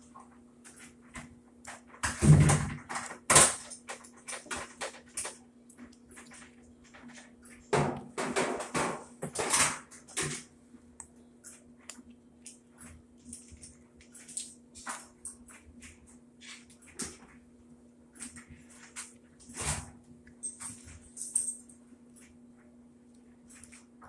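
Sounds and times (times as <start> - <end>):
plastic and metal clatter: 1.7 - 10.5.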